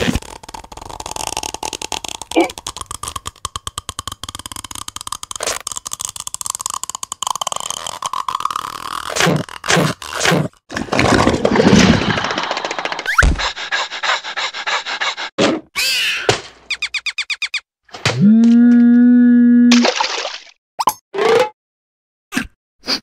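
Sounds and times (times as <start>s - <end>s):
cartoon gulping: 1.9s - 9.4s.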